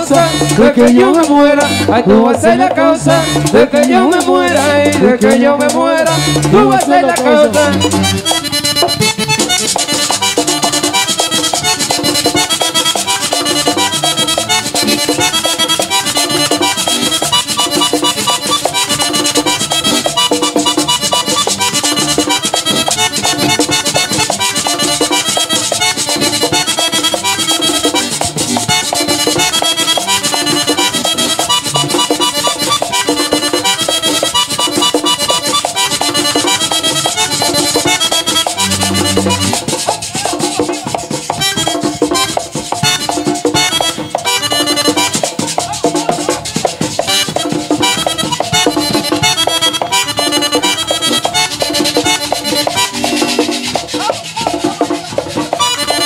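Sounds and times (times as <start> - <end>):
accordion playing lead: 0.0 - 56.0
electric bass: 0.0 - 56.0
tambora drum rhythm: 0.0 - 56.0.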